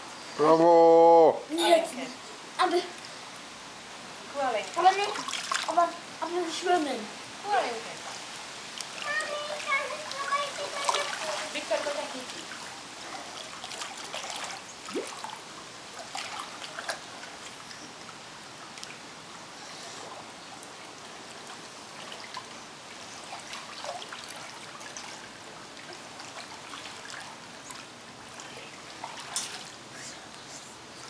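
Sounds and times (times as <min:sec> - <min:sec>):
pool water splashing: 0:00.0 - 0:31.0.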